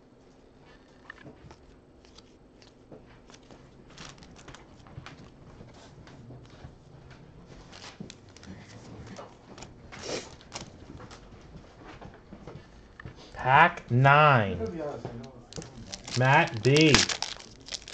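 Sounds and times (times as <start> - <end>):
cards flipped and shuffled: 2.0 - 4.6, 15.6 - 17.9
foil wrappers rustling: 3.3 - 4.8, 7.6 - 8.5, 15.5 - 17.9.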